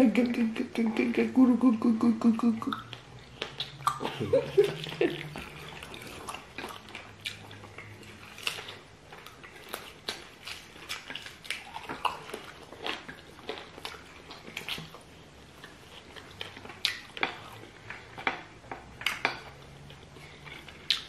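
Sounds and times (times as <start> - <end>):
wet mouth smacking and clicks: 2.6 - 4.2
person chewing food: 2.6 - 21.0.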